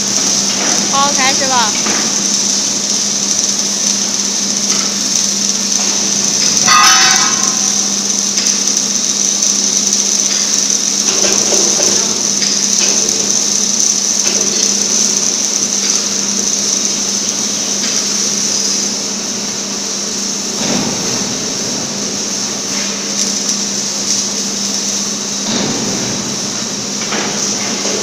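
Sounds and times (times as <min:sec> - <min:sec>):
low electrical hum: 0:00.0 - 0:28.0
plasma cutter hissing: 0:00.0 - 0:28.0.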